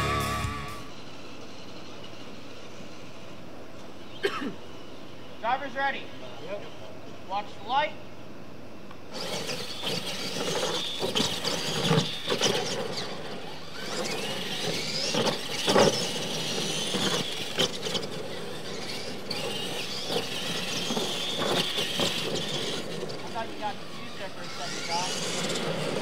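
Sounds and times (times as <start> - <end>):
electric motor whine: 0.0 - 3.6, 9.0 - 26.0.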